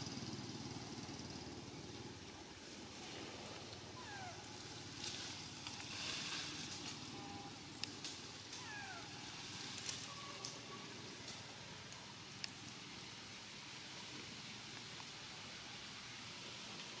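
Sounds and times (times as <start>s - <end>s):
infant monkey calls: 3.9s - 4.5s, 8.5s - 9.4s.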